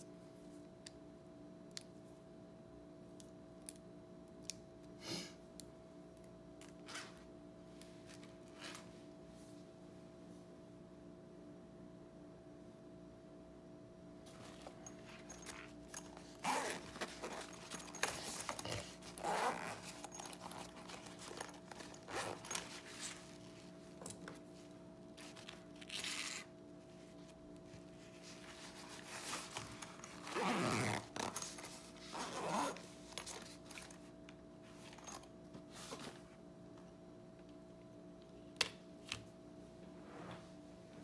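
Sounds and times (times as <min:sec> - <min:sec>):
pencil case zipper pulled: 0:15.4 - 0:23.2, 0:25.8 - 0:26.5, 0:30.0 - 0:32.9.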